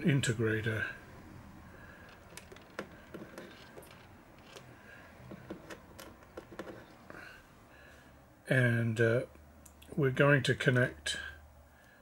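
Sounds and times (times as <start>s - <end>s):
faint clicks and scrapes: 1.9s - 7.3s.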